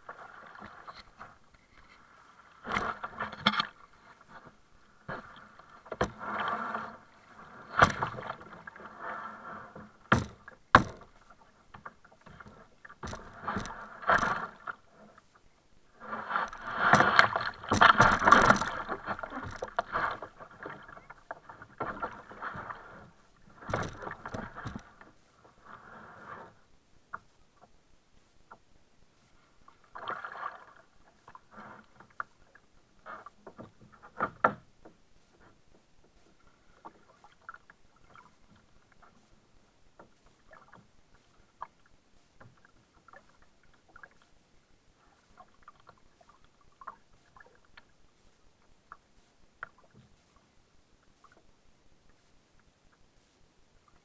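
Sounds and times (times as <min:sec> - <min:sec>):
water splashing around kayak: 0:00.0 - 0:27.8, 0:28.4 - 0:54.0
knocks on kayak hull: 0:10.1 - 0:11.1.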